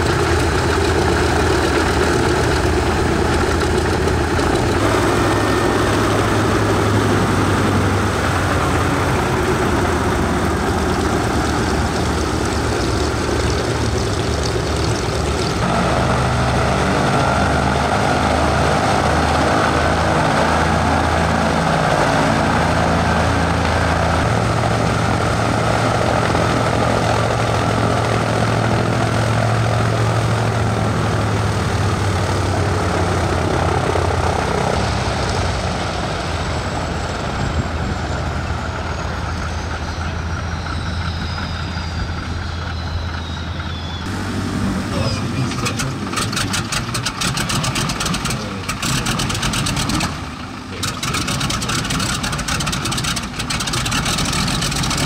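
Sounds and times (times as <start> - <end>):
radial aircraft engines idling: 0.0 - 55.0
radial engine starting with pops: 44.9 - 55.0.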